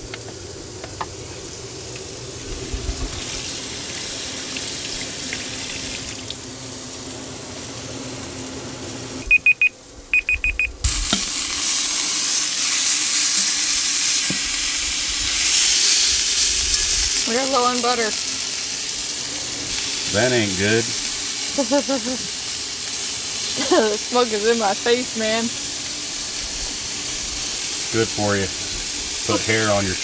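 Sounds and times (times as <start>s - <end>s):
steaks sizzling in a skillet: 0.2s - 9.2s, 10.8s - 30.0s
phone timer beeping: 9.3s - 10.8s
low steady hum: 27.4s - 30.0s.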